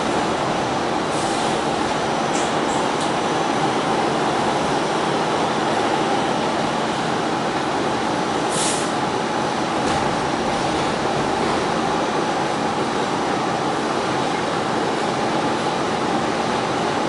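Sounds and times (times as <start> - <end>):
subway wheels rolling on rail: 0.0 - 17.0
short high hiss: 8.5 - 9.0.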